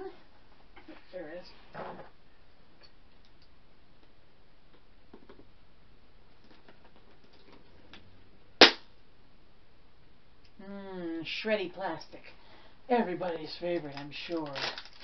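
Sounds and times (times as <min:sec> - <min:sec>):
sharp plastic snap: 0:08.6 - 0:08.8.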